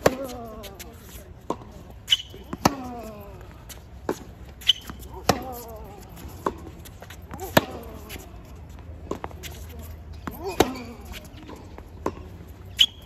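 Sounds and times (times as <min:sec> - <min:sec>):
racket striking tennis ball: 0:04.0 - 0:08.1.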